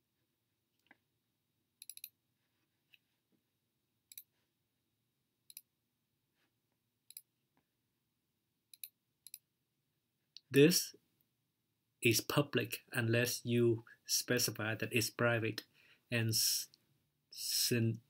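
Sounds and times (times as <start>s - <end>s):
computer mouse clicks: 1.8s - 2.1s, 5.5s - 5.7s, 8.7s - 9.4s.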